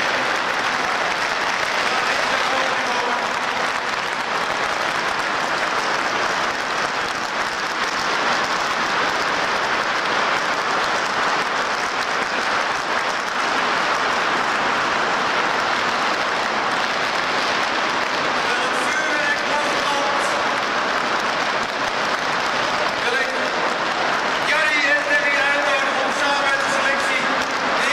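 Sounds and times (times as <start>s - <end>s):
stadium crowd applauding: 0.0s - 27.9s.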